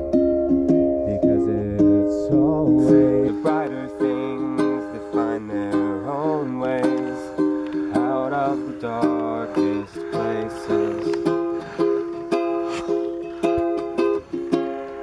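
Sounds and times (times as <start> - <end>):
ukulele strumming: 0.0 - 15.0
man singing: 1.0 - 11.6.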